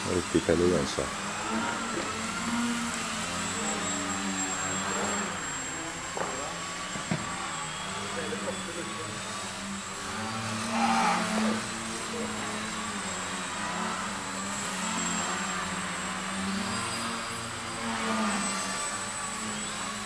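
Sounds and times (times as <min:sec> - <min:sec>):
model plane propellers buzzing: 0:00.0 - 0:20.0.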